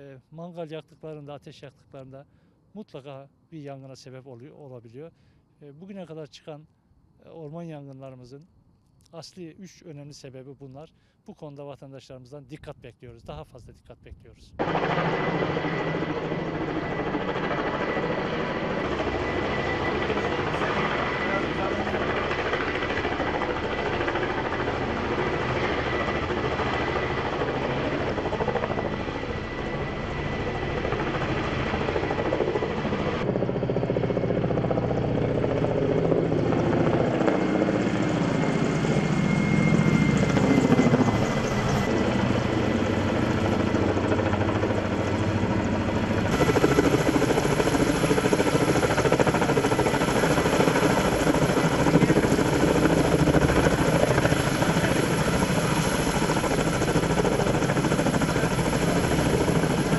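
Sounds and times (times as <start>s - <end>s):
helicopter rotor and turbine noise: 13.4s - 59.9s.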